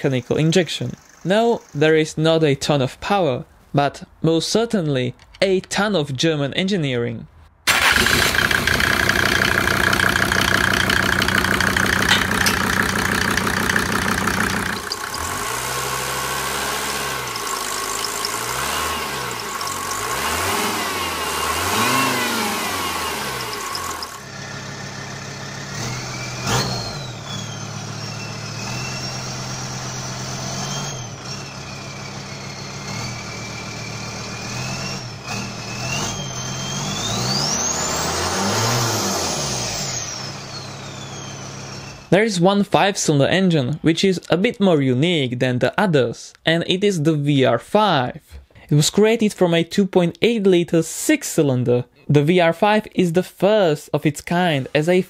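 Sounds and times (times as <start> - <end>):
diesel engine running and revving: 7.7 - 42.1.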